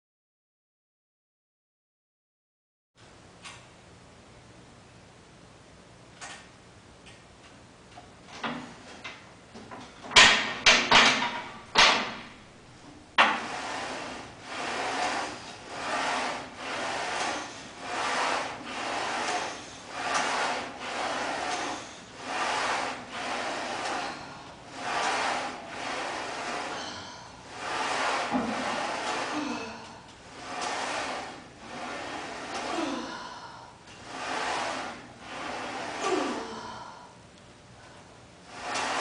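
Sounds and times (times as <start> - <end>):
weight sled sliding on rails: 13.2 - 33.3, 33.9 - 36.8, 38.5 - 39.0.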